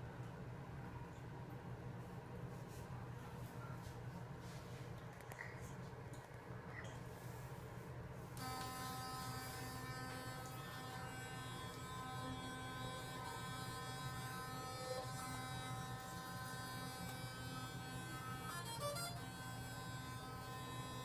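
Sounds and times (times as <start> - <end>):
electric toothbrush buzzing: 8.4 - 21.0.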